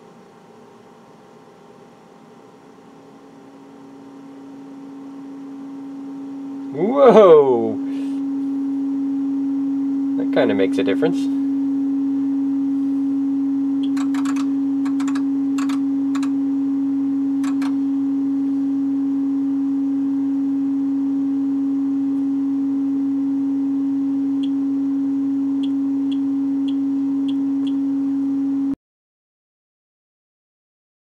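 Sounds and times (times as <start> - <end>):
steady sine test tone: 2.3 - 28.8
sharp clicks: 13.8 - 16.3, 17.4 - 17.8.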